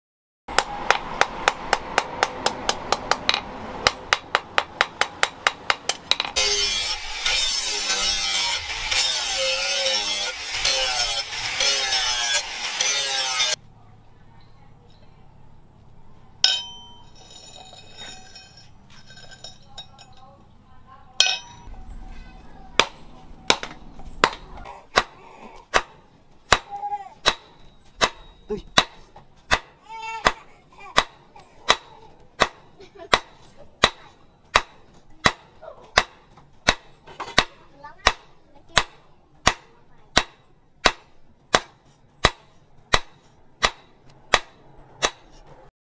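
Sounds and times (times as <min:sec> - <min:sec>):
hammer striking hot steel: 0:00.5 - 0:13.6, 0:16.4 - 0:17.6, 0:21.2 - 0:21.7, 0:22.8 - 0:45.3
angle grinder grinding: 0:06.4 - 0:13.6
hammer ringing on steel blade: 0:16.4 - 0:17.3, 0:21.2 - 0:21.7.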